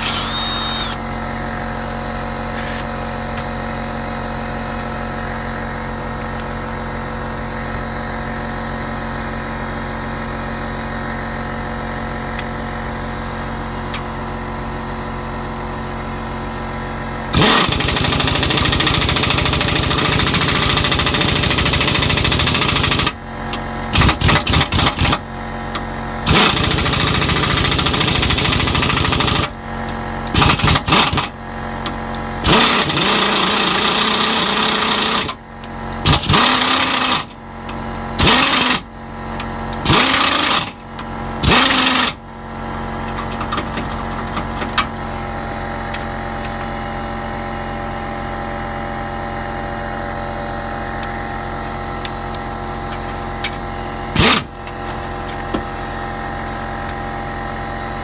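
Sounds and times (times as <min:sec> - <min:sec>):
air impact driver hammering: 0:54.1 - 0:54.6.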